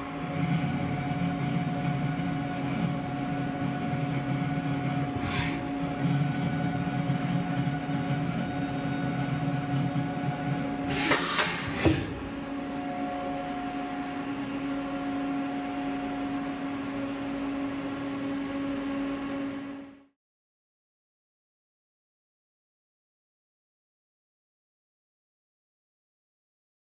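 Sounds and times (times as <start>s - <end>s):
milling machine humming: 0.0s - 20.1s.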